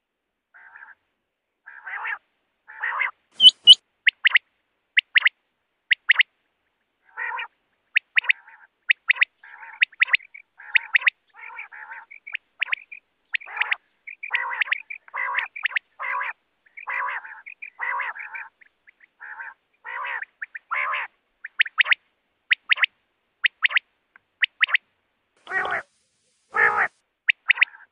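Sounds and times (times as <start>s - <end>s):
quail nasal quacking notes: 1.7s - 4.4s, 7.0s - 18.6s, 19.2s - 23.8s, 25.4s - 25.9s, 26.5s - 27.9s
quail high whistled notes: 3.4s - 4.2s.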